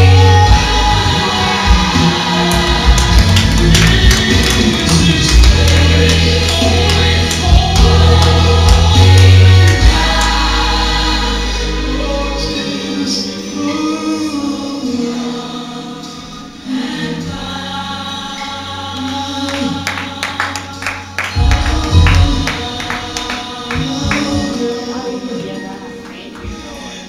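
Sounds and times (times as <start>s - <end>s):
heavy bass line: 0.0s - 12.4s, 21.4s - 24.6s
gospel choir singing: 0.0s - 27.0s.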